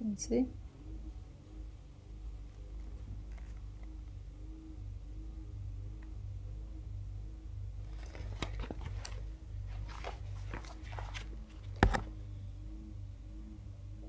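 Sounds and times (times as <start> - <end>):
magazine pages rustling: 7.8 - 12.2.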